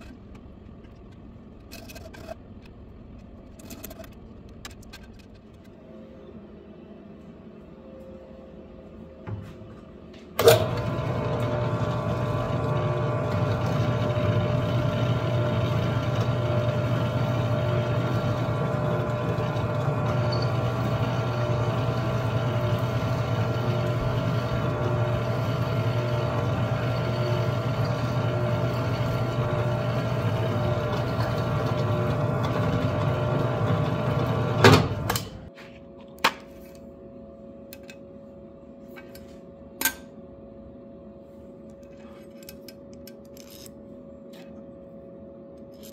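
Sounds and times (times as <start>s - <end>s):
drill press boring into metal: 10.4s - 35.4s.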